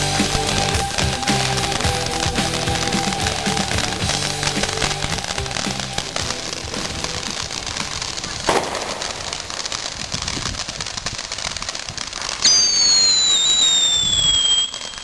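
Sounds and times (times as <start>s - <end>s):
shrill firework whistle: 0.0s - 6.3s, 12.2s - 15.0s
fireworks hissing and crackling: 0.0s - 15.0s
firework pop: 3.5s - 11.8s.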